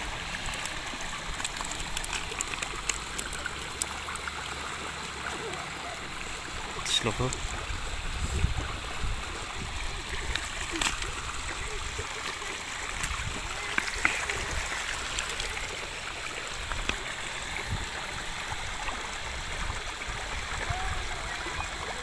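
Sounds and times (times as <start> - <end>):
river water rushing: 0.0 - 22.0.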